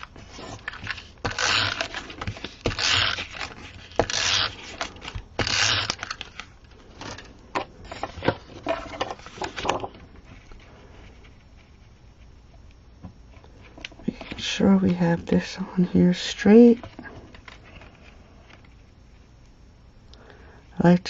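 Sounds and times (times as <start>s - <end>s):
tape runner on cardstock: 0.9s - 6.2s.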